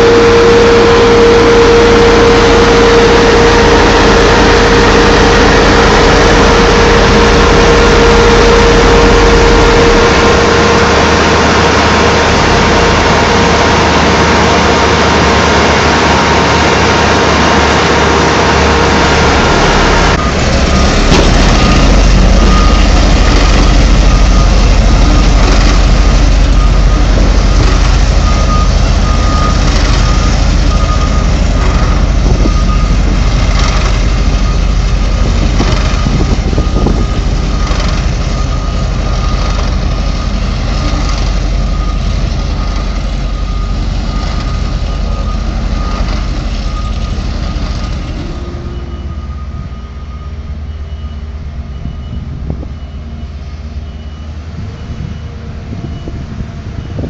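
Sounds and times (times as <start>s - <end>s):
heavy machinery running: 0.0s - 57.0s
reversing alarm beeping: 0.0s - 57.0s
truck diesel engine: 0.0s - 57.0s.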